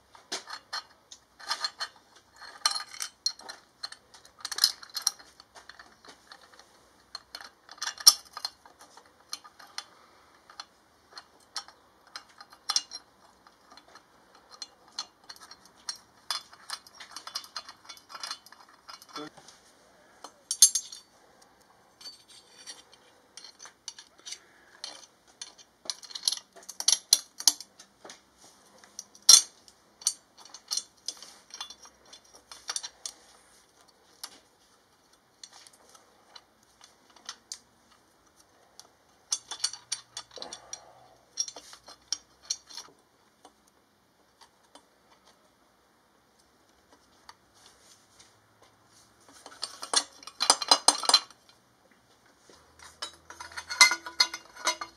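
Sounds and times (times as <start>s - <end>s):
hand tools clinking on metal: 0.3s - 19.3s, 20.2s - 21.1s, 21.9s - 27.9s, 28.8s - 34.4s, 35.1s - 42.9s, 49.3s - 51.6s, 52.6s - 54.9s.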